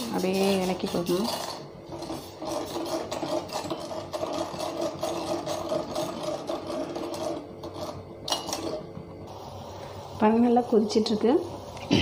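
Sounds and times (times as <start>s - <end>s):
spoon scraping saucepan: 0.0s - 8.8s.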